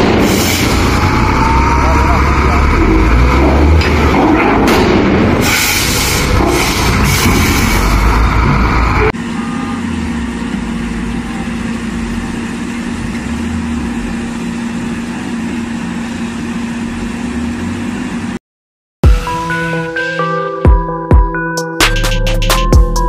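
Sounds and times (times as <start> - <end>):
diesel excavator engine droning: 0.0 - 18.4.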